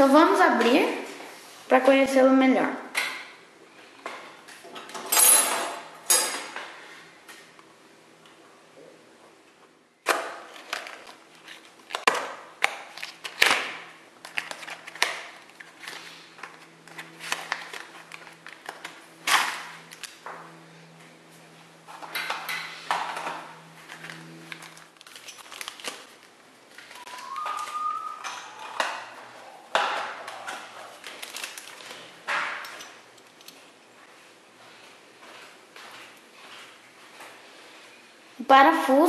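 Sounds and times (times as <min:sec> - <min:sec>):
cardboard and plastic tearing: 0:10.1 - 0:20.2, 0:23.9 - 0:27.1, 0:30.2 - 0:32.2.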